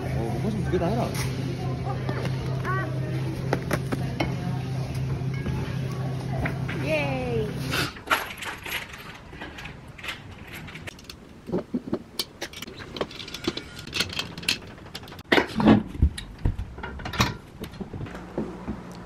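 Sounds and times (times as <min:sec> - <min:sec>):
metal tubes clicking and clinking: 0:12.2 - 0:15.3.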